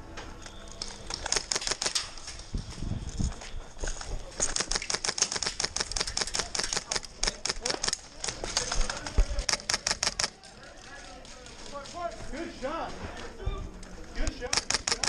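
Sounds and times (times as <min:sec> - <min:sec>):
airsoft rifles firing: 0:01.1 - 0:02.2, 0:04.4 - 0:10.4, 0:14.4 - 0:15.0.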